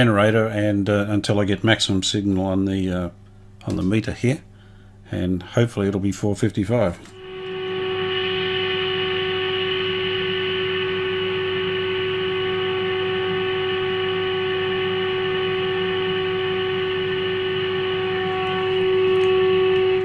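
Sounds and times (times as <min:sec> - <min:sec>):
low hum: 0:00.0 - 0:20.0
steady test tone from radio: 0:06.7 - 0:20.0.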